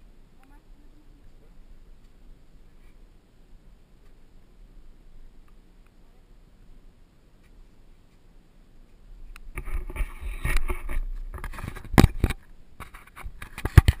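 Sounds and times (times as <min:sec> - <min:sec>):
camera handling noise: 0:09.4 - 0:14.0.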